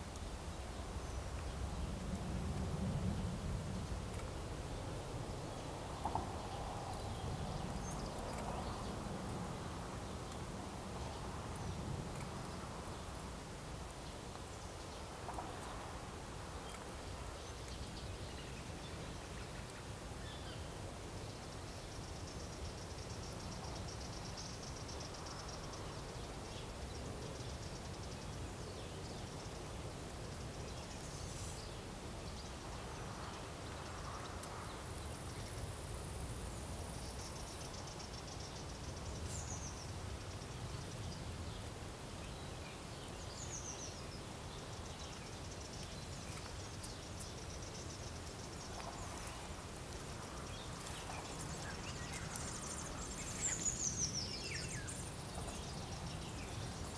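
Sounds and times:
bird chirps: 50.5s - 56.9s.

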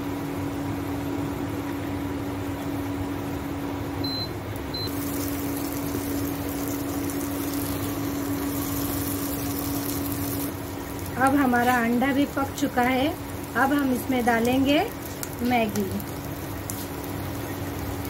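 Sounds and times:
eggs hissing in a pan: 4.9s - 18.0s.

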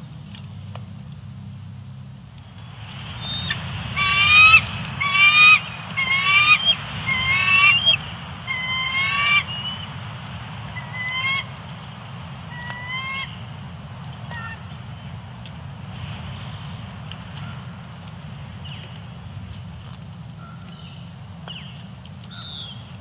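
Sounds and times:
eagle squealing: 3.2s - 9.9s.

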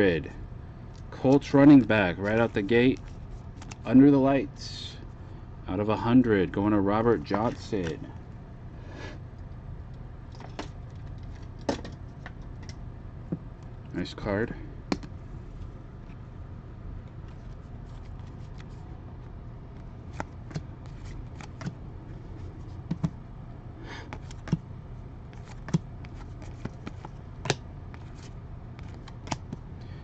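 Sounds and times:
steady low hum: 0.0s - 30.0s
trading cards flipping clicks: 24.0s - 24.6s, 25.3s - 29.6s.

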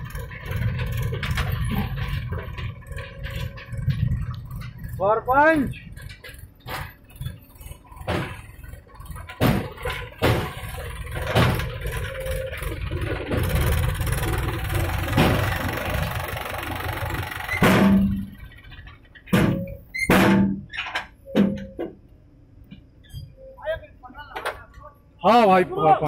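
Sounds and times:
diesel engine rumbling: 0.0s - 26.0s
sharp knocks: 9.2s - 11.8s, 19.3s - 20.7s.

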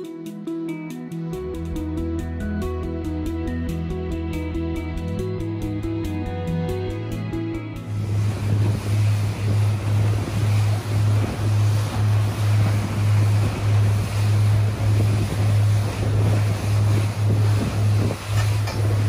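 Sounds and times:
low pulsing engine hum: 1.3s - 19.0s
water rushing from boat hull: 7.8s - 19.0s
wind buffeting microphone: 7.9s - 19.0s.

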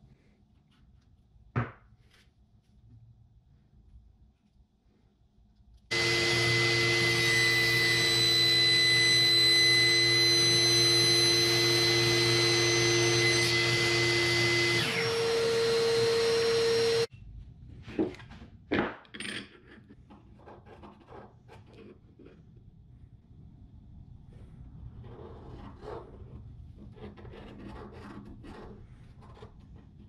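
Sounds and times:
table saw whining: 5.9s - 17.1s.

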